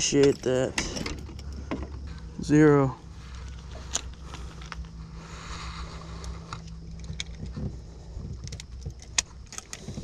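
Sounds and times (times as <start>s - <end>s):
sharp clicks: 8.3s - 10.0s.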